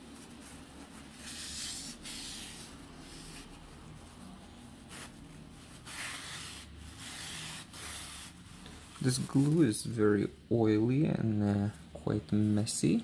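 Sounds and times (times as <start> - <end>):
tissue rubbing on glass: 0.0 - 9.9.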